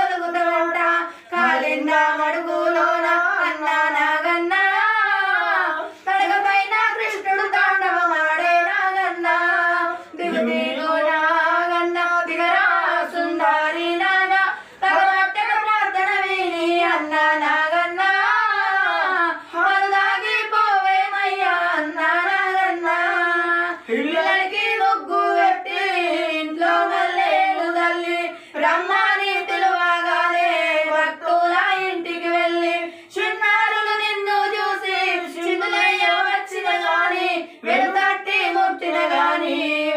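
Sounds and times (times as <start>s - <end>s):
woman singing unaccompanied: 0.0s - 39.9s.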